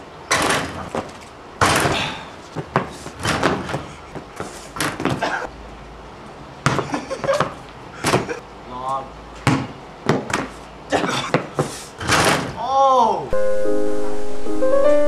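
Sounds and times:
basketball rim and backboard rattling: 0.3s - 2.0s, 3.2s - 3.8s
basketball bouncing: 2.6s - 3.8s, 9.4s - 10.5s.

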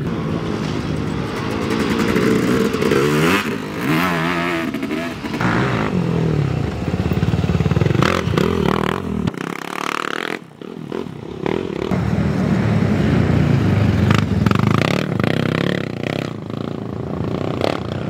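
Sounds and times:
atv engines revving: 0.0s - 18.0s.

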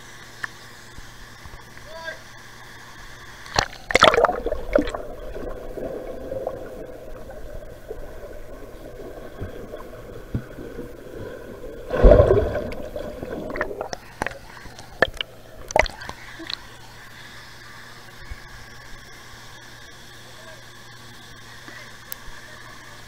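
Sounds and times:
underwater gurgling water: 2.5s - 19.2s
water surge: 3.5s - 16.5s
splashes and drips: 3.5s - 16.6s.

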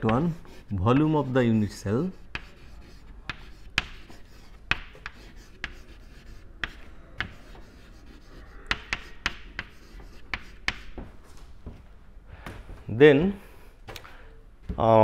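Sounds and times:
chalk scratching: 0.0s - 11.1s
chalk tapping on blackboard: 0.0s - 11.1s.

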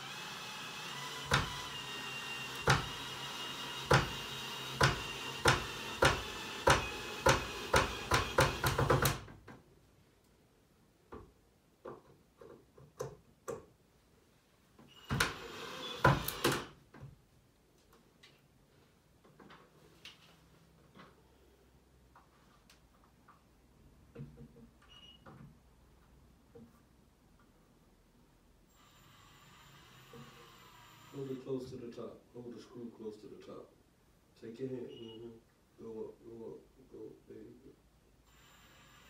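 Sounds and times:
hammer knocking on wood: 4.8s - 9.3s.

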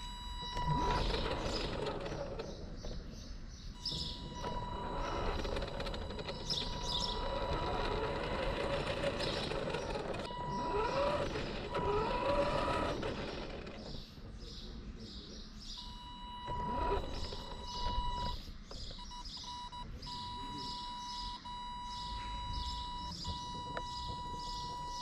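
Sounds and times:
remote-control car motor whining: 0.0s - 3.0s, 3.8s - 14.2s, 15.8s - 19.2s.

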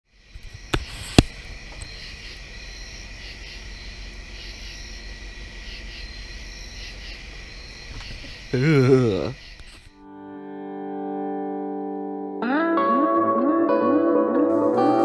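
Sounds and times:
crickets and insects trilling: 0.1s - 10.0s.

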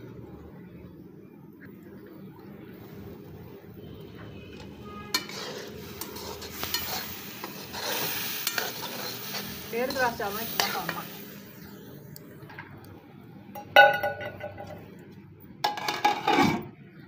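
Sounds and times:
metal ladle scraping pan: 4.5s - 11.2s, 15.6s - 16.7s
food sizzling in pan: 4.5s - 12.2s.

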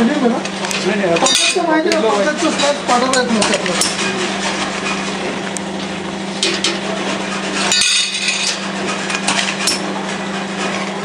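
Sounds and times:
machine hum: 0.0s - 11.0s
metal screws clattering: 7.7s - 8.6s.

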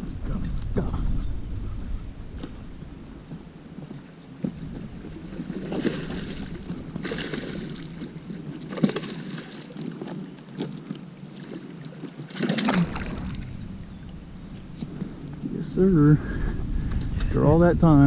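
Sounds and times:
fish splashing in water: 5.1s - 14.8s.

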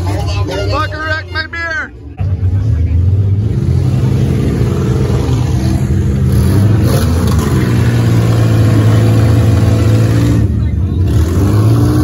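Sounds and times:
car engines running loud: 0.0s - 12.0s
engine revving: 2.5s - 12.0s.

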